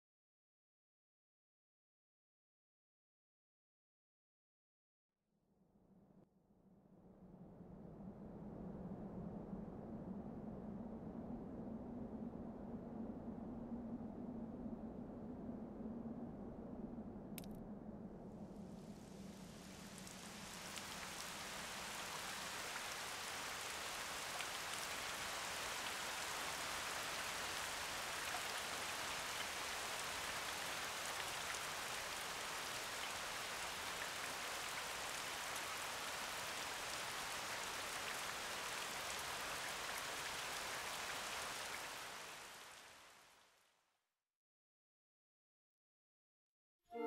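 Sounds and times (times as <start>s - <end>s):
steady rainfall: 18.3s - 43.4s.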